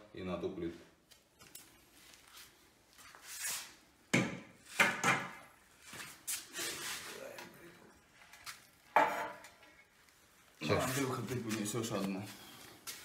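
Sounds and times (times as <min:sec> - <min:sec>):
tools scraping on tile floor: 0:05.8 - 0:07.2.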